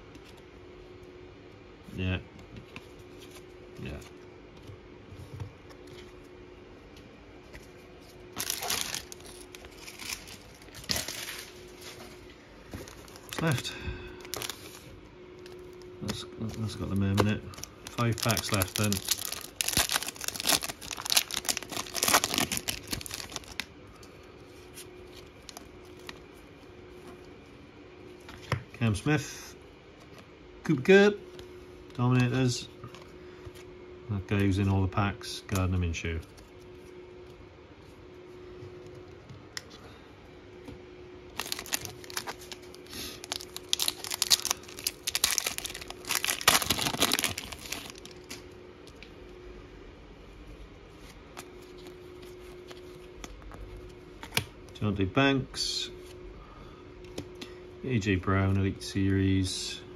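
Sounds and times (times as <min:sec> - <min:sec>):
foil wrapper tearing and crinkling: 0:08.4 - 0:11.5, 0:14.3 - 0:14.7, 0:16.6 - 0:23.7, 0:41.4 - 0:48.4.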